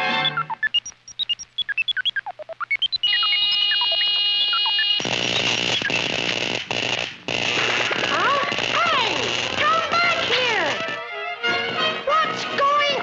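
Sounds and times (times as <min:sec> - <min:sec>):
electronic bleeps sliding in pitch: 0:00.0 - 0:05.0
steady electronic tones: 0:00.0 - 0:11.2
loud hissing crackling buzz: 0:00.6 - 0:11.1.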